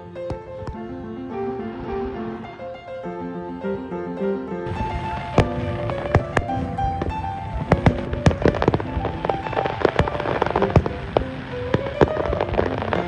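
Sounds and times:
music playing: 0.0s - 13.0s
fireworks bangs and crackles: 4.6s - 13.0s.

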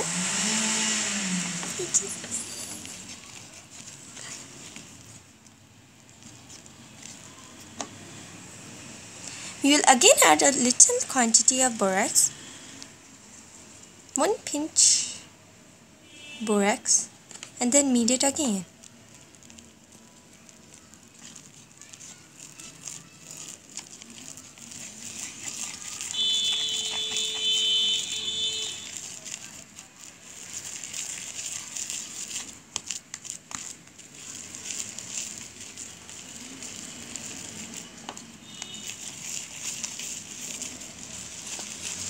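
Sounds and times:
hands kneading slime: 1.4s - 7.9s, 17.4s - 42.0s.

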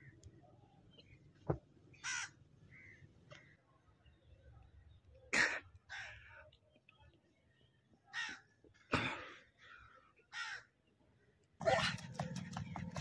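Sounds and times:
crows cawing: 2.0s - 3.6s, 5.9s - 6.4s, 8.1s - 8.5s, 9.6s - 10.7s.

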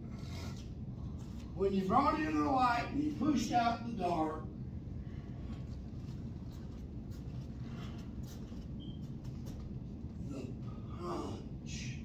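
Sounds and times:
room noise hum: 0.0s - 12.0s
faint rustles: 5.0s - 10.9s.

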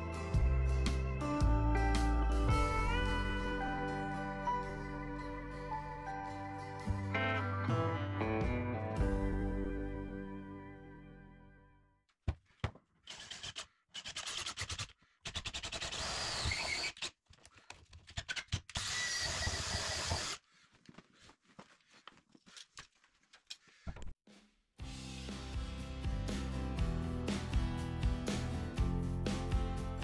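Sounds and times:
power drill boring into wood: 13.1s - 17.1s, 18.2s - 20.4s.

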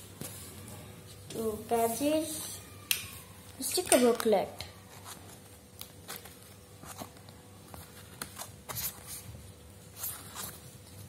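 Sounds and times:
paper booklet rustling: 3.6s - 11.0s.

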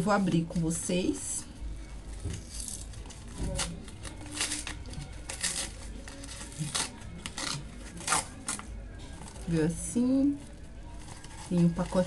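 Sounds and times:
packaging ripping and crinkling: 2.4s - 9.5s.

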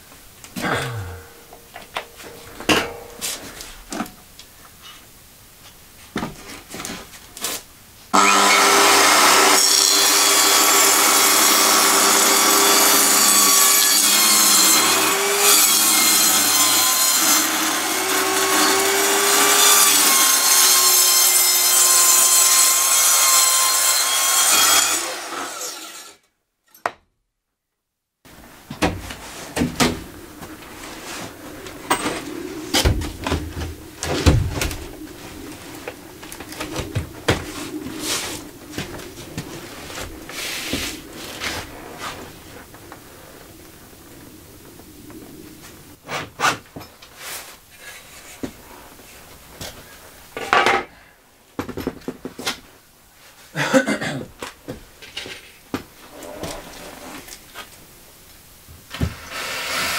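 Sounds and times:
circular saw cutting board: 8.1s - 26.2s, 35.0s - 43.1s, 58.9s - 59.9s.

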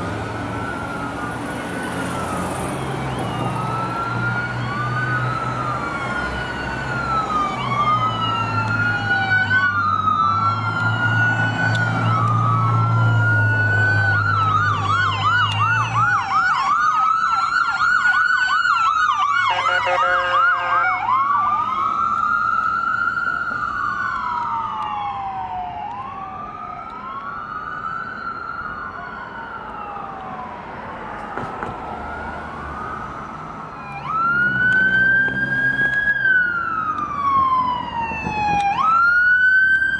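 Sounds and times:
engine rumble: 0.0s - 19.5s
siren wailing and yelping: 0.4s - 39.9s
vehicle horn: 19.5s - 21.0s.

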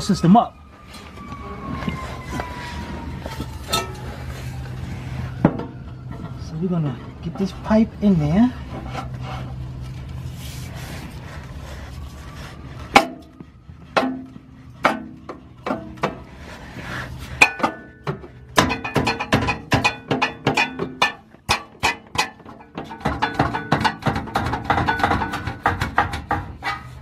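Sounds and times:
metal pipe knocking and clinking: 17.4s - 26.9s.

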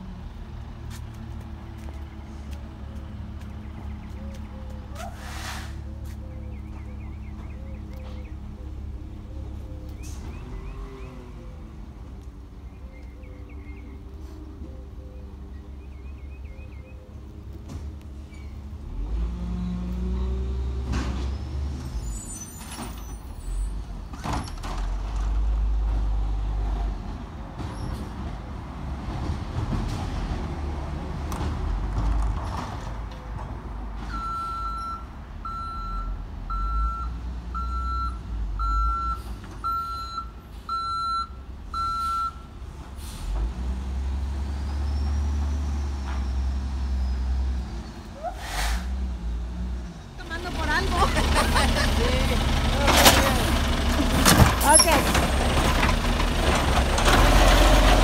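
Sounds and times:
diesel truck engine rumbling: 0.0s - 58.0s
reversing alarm beeping: 34.1s - 42.5s.

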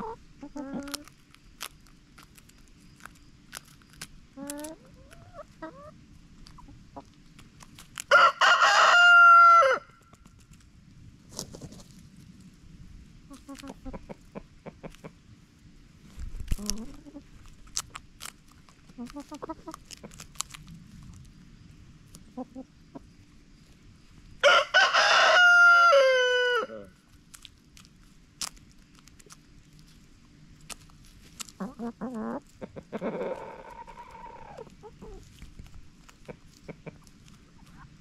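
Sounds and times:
hens clucking: 0.0s - 9.8s, 13.2s - 15.3s, 16.2s - 20.5s, 22.1s - 23.4s, 30.7s - 38.0s
beaks pecking the ground: 0.0s - 12.3s, 13.2s - 15.2s, 16.0s - 26.2s, 27.0s - 38.0s
rooster crowing: 8.1s - 10.0s, 24.4s - 26.9s
hen drawn-out call: 31.8s - 35.2s.

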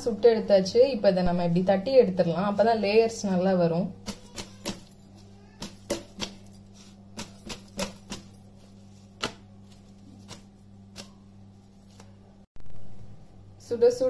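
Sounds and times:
steady low hum: 0.0s - 14.0s
hands slapping flatbreads: 4.0s - 12.3s.

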